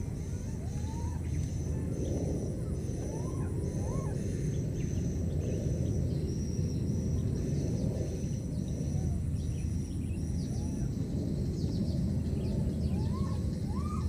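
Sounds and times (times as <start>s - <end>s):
rising animal calls: 0.0s - 5.0s, 12.8s - 14.0s.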